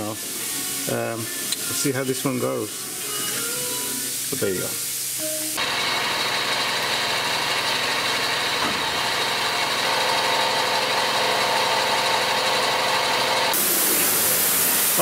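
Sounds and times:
lathe motor whine: 5.6 - 14.5.

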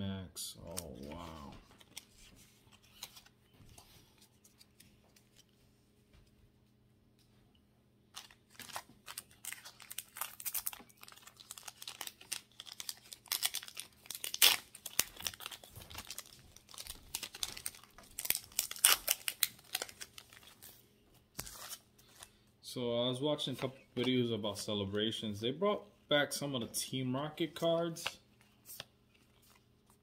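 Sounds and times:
foil pack crinkling and tearing: 8.1 - 20.8.

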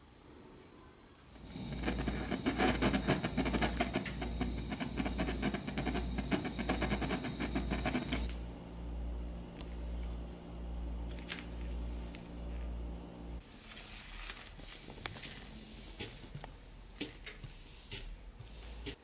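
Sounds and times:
low steady hum: 0.0 - 14.4
torch flame hissing and crackling: 1.4 - 8.4.

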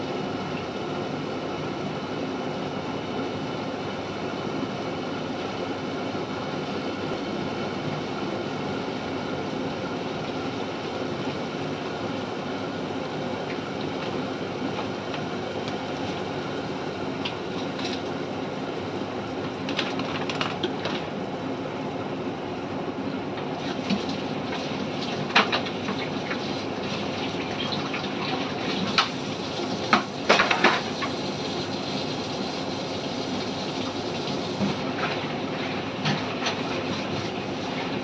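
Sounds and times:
pot simmering with steady hiss: 23.6 - 38.0.

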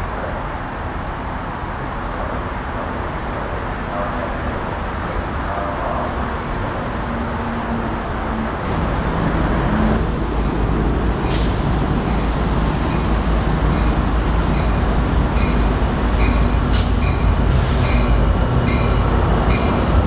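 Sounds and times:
bus rumbling by: 0.0 - 20.0
distant diesel locomotive drone: 0.0 - 20.0
air brake hiss: 9.7 - 12.0, 16.7 - 17.9.

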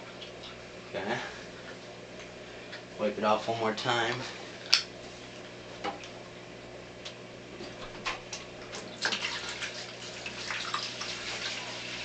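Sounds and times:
water splashing into a bucket: 8.7 - 12.0.

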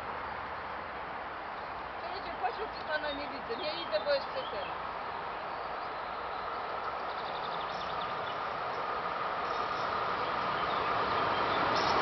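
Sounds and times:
train rushing on rails: 6.1 - 12.0.

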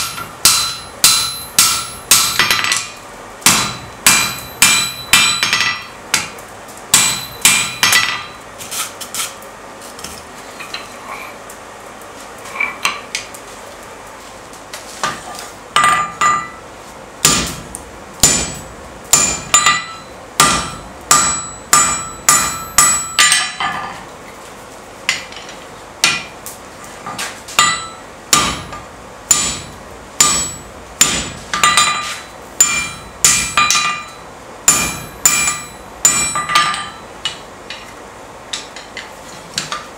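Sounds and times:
metallic ring: 0.0 - 2.8, 3.6 - 6.0, 7.0 - 8.4, 19.2 - 23.8, 31.6 - 37.1
hammer striking metal on anvil: 0.0 - 8.4, 15.8 - 16.6, 17.2 - 23.9, 27.6 - 37.8.

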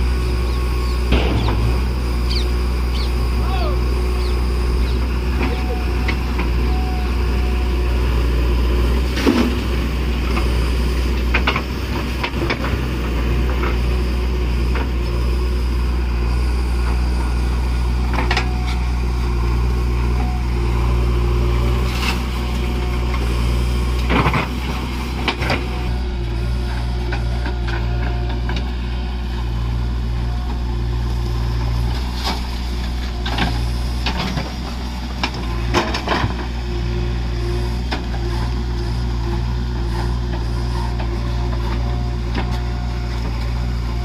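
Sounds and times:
diesel engine running under load: 0.0 - 44.0.

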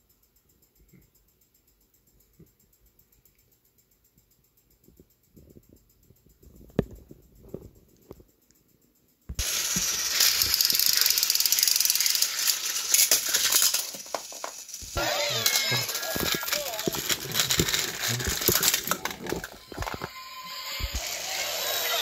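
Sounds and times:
toy trains rattling on track: 9.4 - 22.0.

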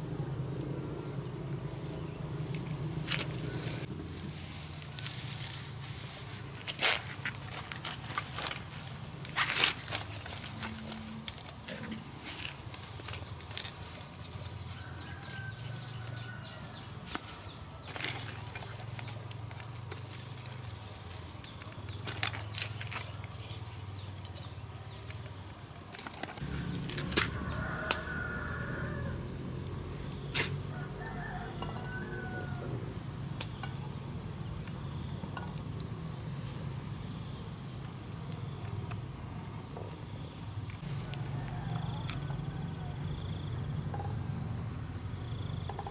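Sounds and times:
insect chirr: 0.0 - 45.9
bamboo sticks snapping: 21.5 - 28.2.

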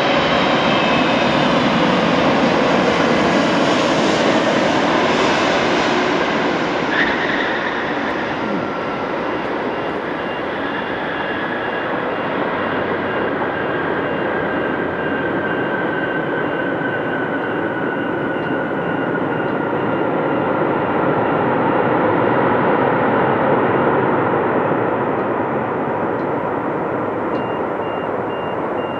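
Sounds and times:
jet engines roaring: 0.0 - 28.9
turbine whine falling in pitch: 4.8 - 21.0
faint high beeping: 26.1 - 28.9.

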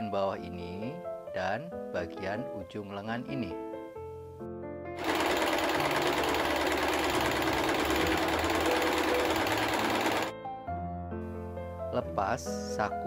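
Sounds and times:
electric sewing machine running: 5.0 - 10.3.

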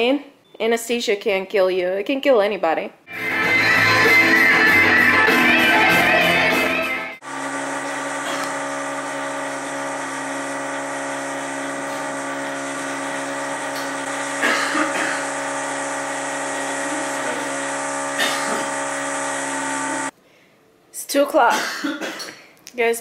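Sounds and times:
electric drill whining: 7.2 - 20.1.

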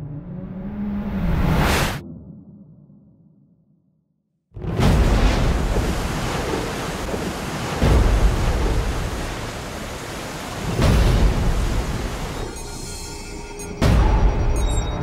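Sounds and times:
water surging against ship hull: 4.6 - 13.4
churning waves: 4.6 - 14.6.

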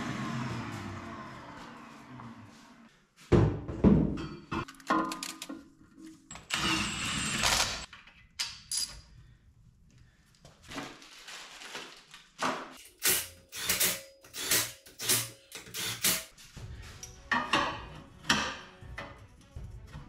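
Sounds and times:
metal parts knocking and clinking: 4.2 - 5.7, 7.4 - 9.1.

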